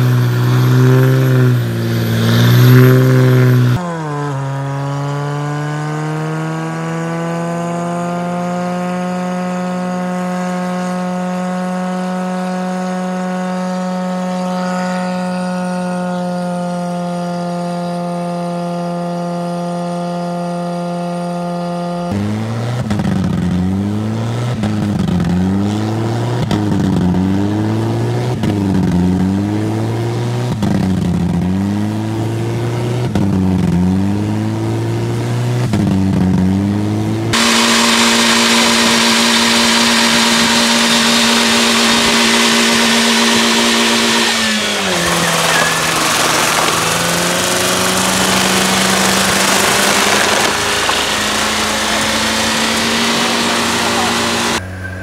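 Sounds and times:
car engine revving: 0.0s - 55.0s
tyres spinning with rushing hiss: 37.4s - 54.6s.

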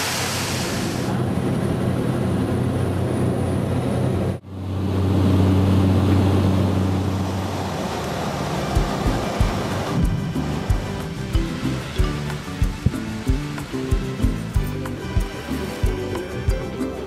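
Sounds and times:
waterfall rushing: 0.0s - 1.2s, 6.8s - 17.0s
small plane engine in cabin: 0.0s - 17.0s.

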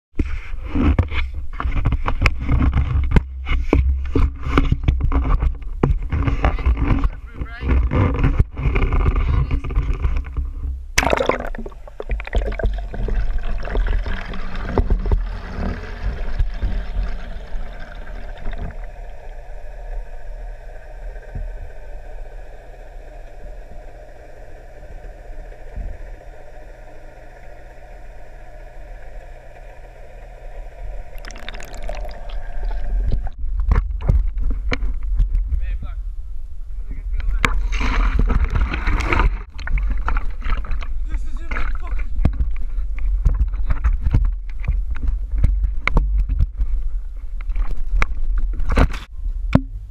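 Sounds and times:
low underwater hum: 0.2s - 49.9s
underwater gurgling: 0.3s - 35.6s, 37.2s - 49.0s
splash into pool: 11.0s - 15.0s.

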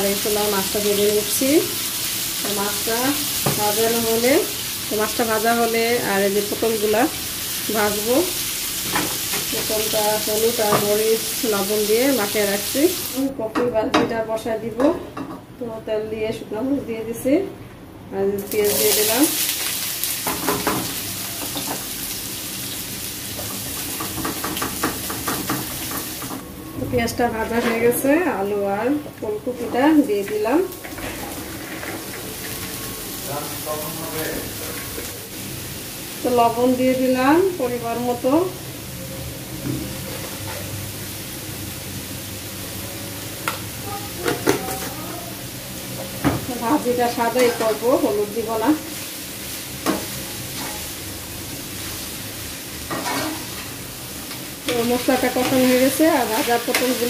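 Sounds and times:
onion frying in hot oil: 0.0s - 13.5s, 18.4s - 57.0s
spatula clattering against pan: 24.0s - 26.1s.

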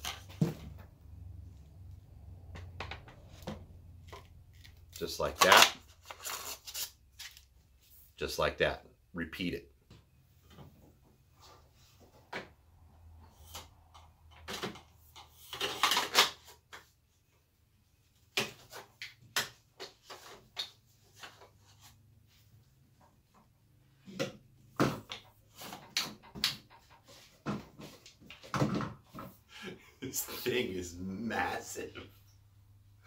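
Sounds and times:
knocks clicks and rattles of tool parts: 13.4s - 16.9s, 24.0s - 29.4s.

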